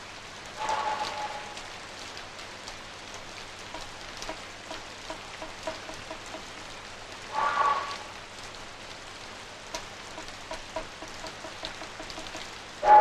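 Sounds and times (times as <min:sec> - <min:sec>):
steady rain falling: 0:00.0 - 0:13.0
light dripping plinks: 0:03.7 - 0:06.6, 0:09.7 - 0:12.5.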